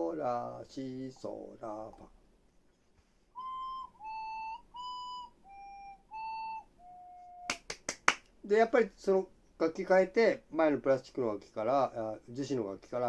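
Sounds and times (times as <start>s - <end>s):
ocarina held notes: 3.3s - 7.7s.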